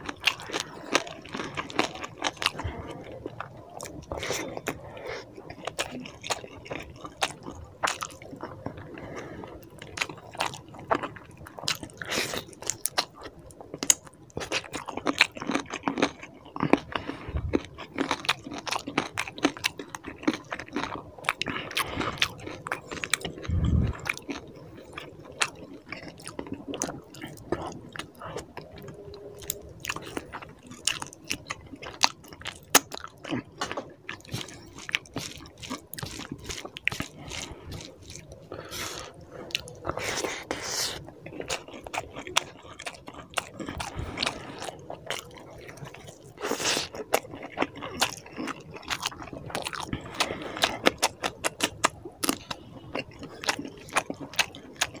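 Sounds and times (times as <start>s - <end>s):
chewing and biting food: 0.0s - 55.0s
dull low thumps: 23.4s - 24.1s.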